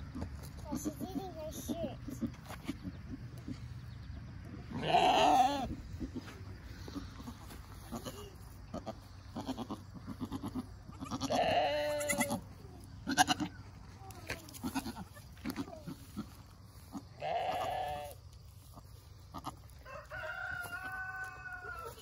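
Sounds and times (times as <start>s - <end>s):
goat bleating: 4.7s - 13.6s, 14.3s - 18.2s, 19.3s - 19.7s.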